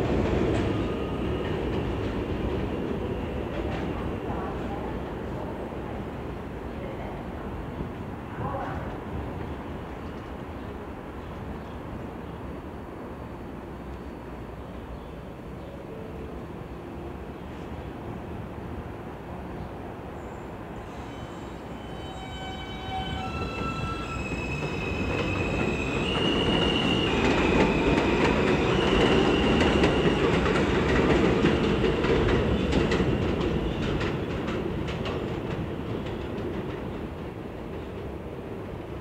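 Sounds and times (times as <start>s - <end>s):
subway traction motors whining: 20.0s - 39.0s.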